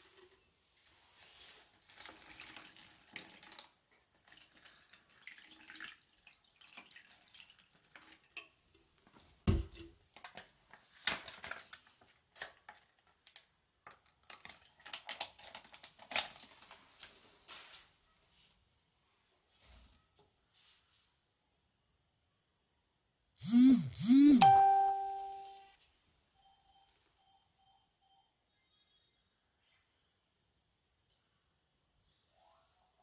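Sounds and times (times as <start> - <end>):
water pouring into plastic container: 1.2 - 8.6.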